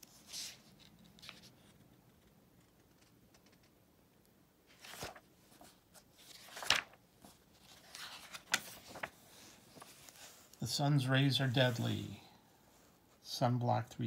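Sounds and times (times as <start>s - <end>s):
magazine pages turning: 0.0s - 2.2s, 4.7s - 10.6s, 11.3s - 12.2s.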